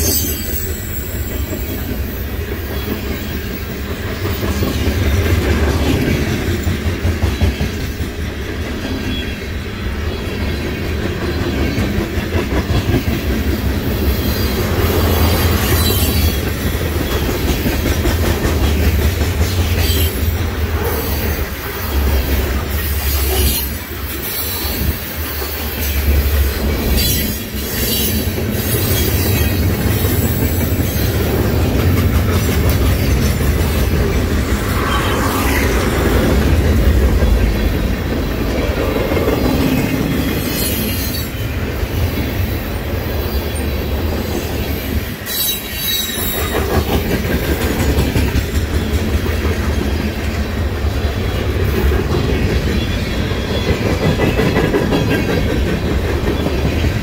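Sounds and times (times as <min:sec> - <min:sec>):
train wheels rumbling on rails: 0:00.0 - 0:57.0.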